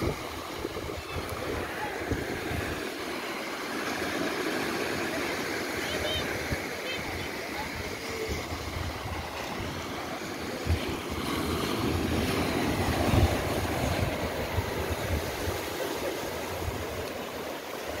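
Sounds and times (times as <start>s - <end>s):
wind rumbling on microphone: 0.0s - 2.9s, 6.2s - 17.0s
surf washing: 0.0s - 18.0s.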